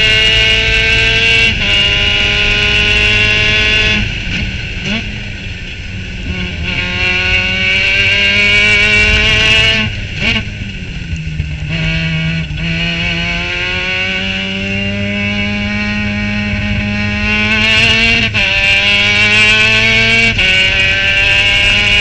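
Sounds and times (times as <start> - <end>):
race car engine at high revs: 0.0 - 22.0.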